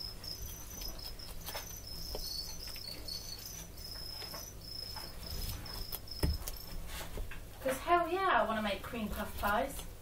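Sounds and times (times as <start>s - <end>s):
crickets chirping: 0.0s - 6.8s.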